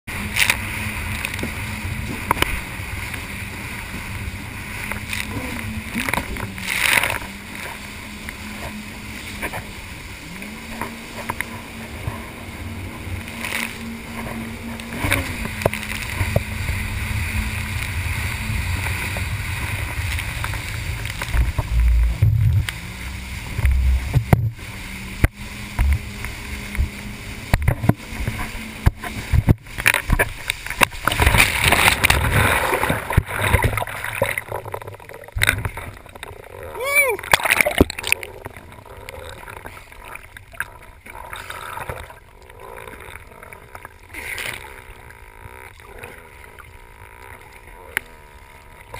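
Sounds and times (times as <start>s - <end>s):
wind: 0.0s - 48.9s
jet ski engine humming: 0.1s - 48.9s
heavy low thumps: 21.3s - 22.7s.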